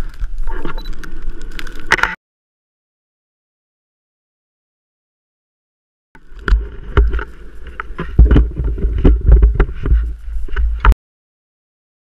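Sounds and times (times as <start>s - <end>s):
sharp crackles: 0.0s - 2.2s, 6.2s - 10.9s.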